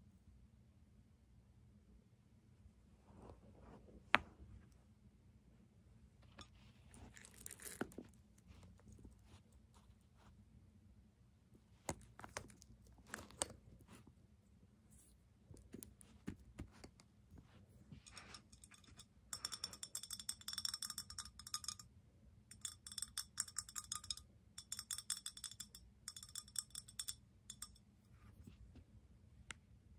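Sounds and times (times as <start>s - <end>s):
small hard objects clinking: 6.9s - 8.1s.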